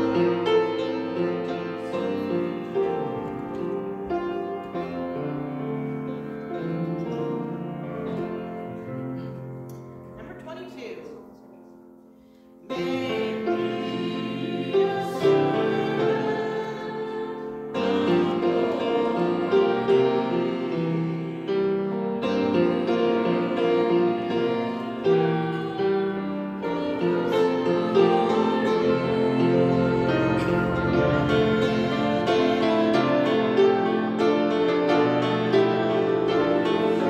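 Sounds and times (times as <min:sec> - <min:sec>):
grand piano accompaniment: 0:00.0 - 0:37.0
woman singing hymn: 0:12.7 - 0:21.6, 0:22.3 - 0:33.5.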